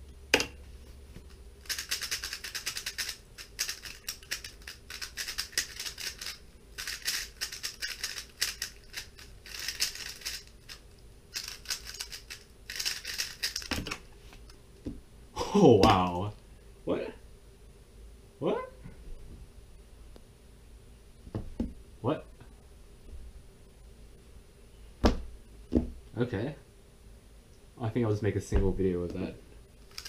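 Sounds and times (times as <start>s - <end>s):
plastic puzzle cube clacking: 1.7s - 10.8s, 11.4s - 14.0s
low thump: 25.0s - 26.0s, 28.5s - 28.8s.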